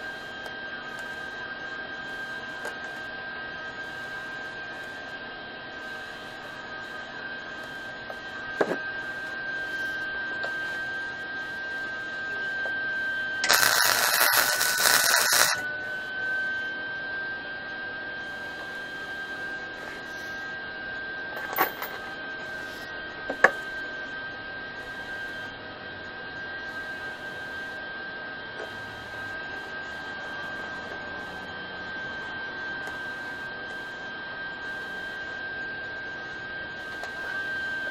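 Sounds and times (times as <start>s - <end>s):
high electrical whine: 0.0s - 37.9s
welding gun hissing: 13.4s - 15.6s.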